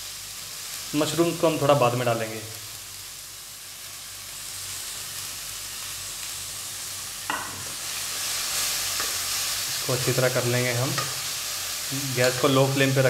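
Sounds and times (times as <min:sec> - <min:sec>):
vegetables sizzling in hot oil: 0:00.0 - 0:13.0
spatula striking pan: 0:07.3 - 0:07.8.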